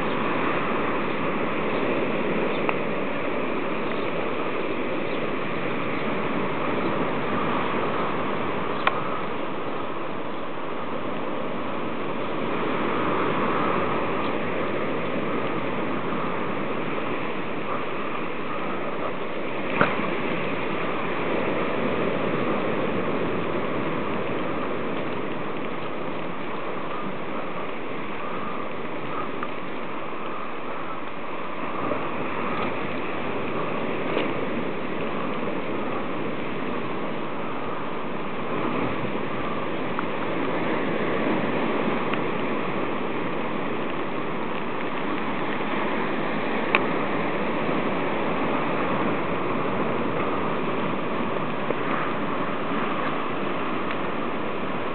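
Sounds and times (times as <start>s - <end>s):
faint clicks: 8.8s - 9.1s, 46.7s - 46.9s.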